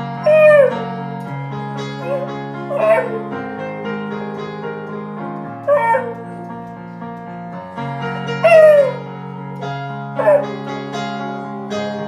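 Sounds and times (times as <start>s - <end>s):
piano chords: 0.0s - 12.0s
dog howling: 0.2s - 0.9s, 2.0s - 3.4s, 5.7s - 6.2s, 8.4s - 9.0s, 10.2s - 10.5s.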